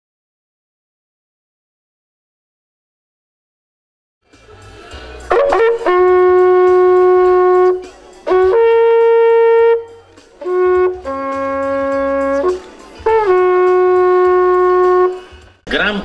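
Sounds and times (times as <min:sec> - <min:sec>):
wooden horn blowing held notes: 0:05.3 - 0:15.6.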